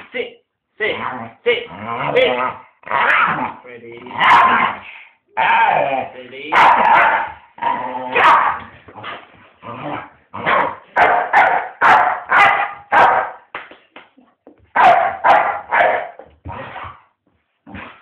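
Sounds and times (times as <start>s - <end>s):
dog barking in play: 2.1s - 5.9s, 6.5s - 8.7s, 10.4s - 13.5s, 14.7s - 17.0s.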